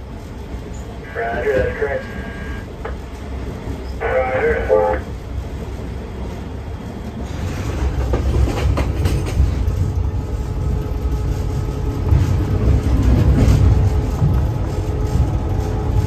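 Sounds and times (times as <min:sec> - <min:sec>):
train rumble: 0:00.0 - 0:16.0
wheels clacking over rail joints: 0:07.3 - 0:10.0.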